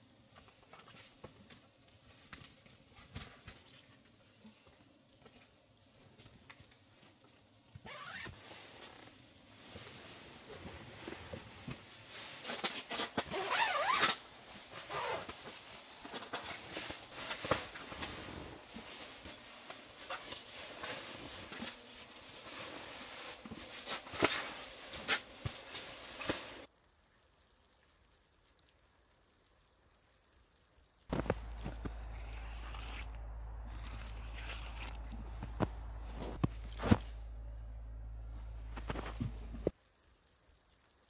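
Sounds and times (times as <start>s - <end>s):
zipper being pulled: 7.8s - 8.4s, 12.8s - 15.4s, 31.1s - 37.2s
nylon sleeping bag rustling: 7.9s - 26.7s, 31.1s - 37.5s.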